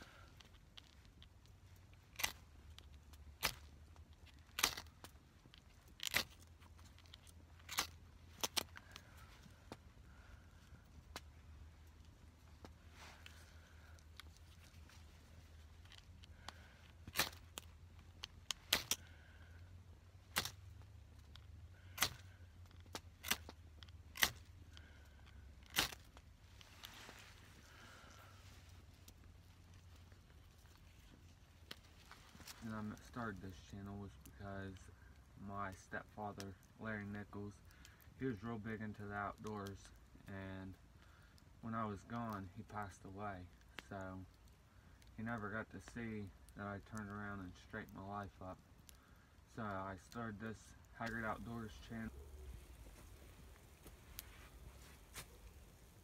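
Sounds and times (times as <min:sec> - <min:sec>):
soft flare of fire: 0:39.7 - 0:56.0.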